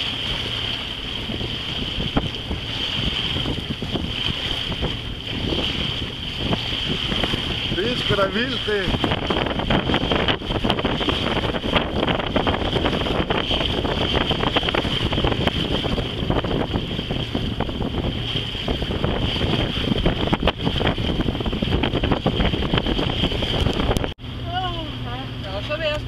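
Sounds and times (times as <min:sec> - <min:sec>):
rush of wind and water: 0:00.0 - 0:26.0
wind buffeting microphone: 0:00.0 - 0:26.0.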